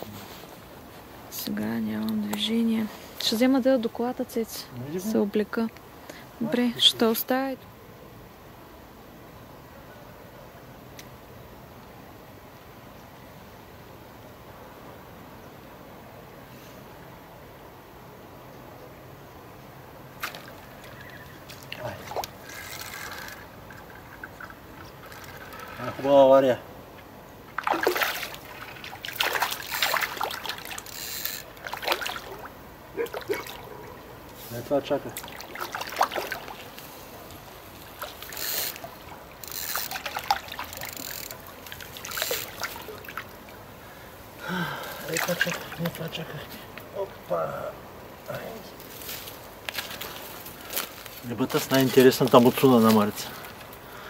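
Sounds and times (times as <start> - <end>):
light splash on water: 20.2 - 25.6, 27.0 - 43.6.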